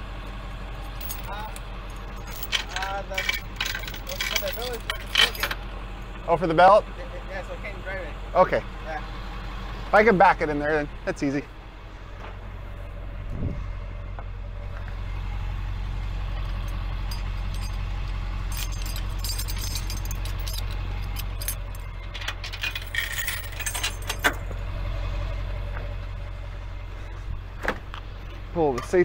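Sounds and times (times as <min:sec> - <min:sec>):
truck engine idling: 0:00.0 - 0:29.0
metal chains rattling: 0:00.8 - 0:05.6, 0:16.3 - 0:24.4.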